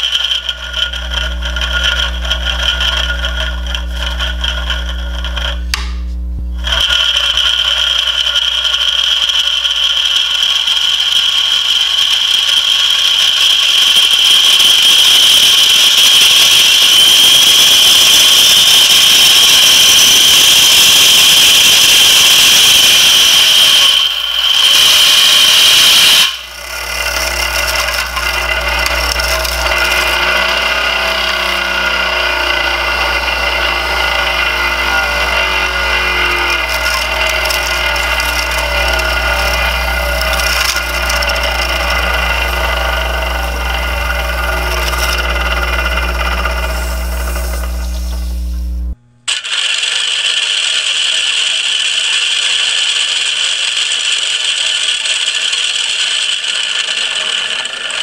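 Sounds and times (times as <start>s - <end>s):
plastic gears whining at high speed: 0.0s - 5.9s, 6.5s - 58.0s
low steady machine hum: 0.0s - 11.0s, 26.3s - 49.3s.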